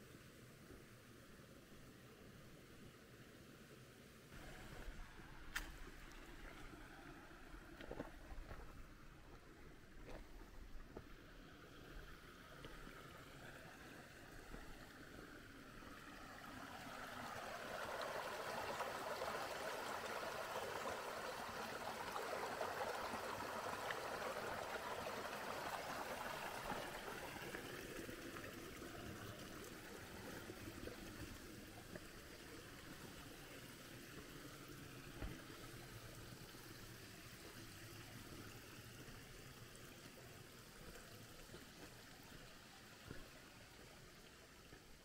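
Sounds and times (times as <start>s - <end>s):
creek water running: 0.0s - 45.0s.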